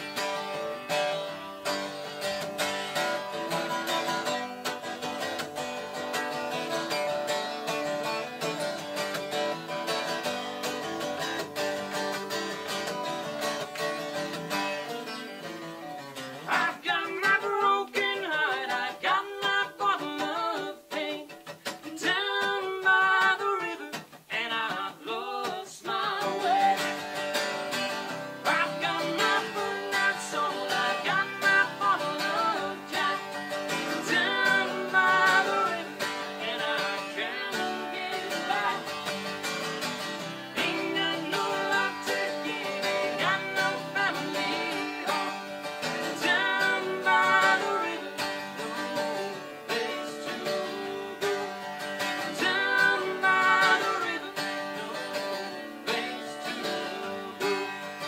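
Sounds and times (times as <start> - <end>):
acoustic guitar strummed: 0.0 - 58.0
woman and man singing: 16.4 - 27.2, 28.3 - 39.5, 40.2 - 58.0.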